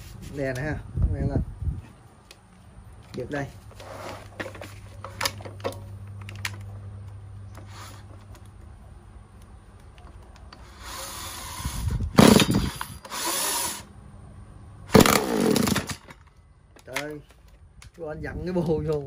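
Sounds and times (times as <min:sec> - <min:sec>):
low steady hum: 0:00.0 - 0:19.0
brushcutter engine firing: 0:12.1 - 0:13.6, 0:14.9 - 0:16.2.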